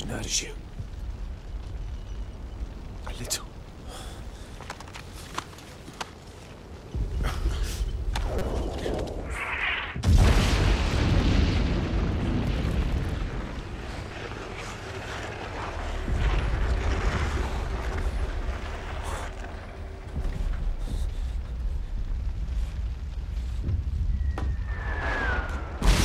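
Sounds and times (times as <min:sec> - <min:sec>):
explosions with deep rumble: 0:07.0 - 0:26.0.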